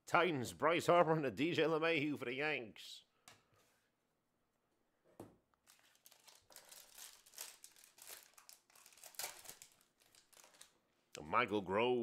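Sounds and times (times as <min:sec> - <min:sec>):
wrapper crinkling and tearing: 0:05.6 - 0:10.8.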